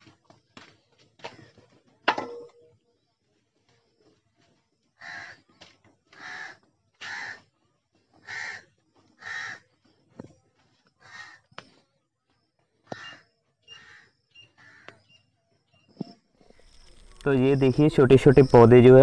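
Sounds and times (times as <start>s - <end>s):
crow cawing: 5.0s - 5.4s, 6.1s - 7.4s, 8.2s - 9.7s, 11.0s - 11.5s, 12.9s - 15.0s.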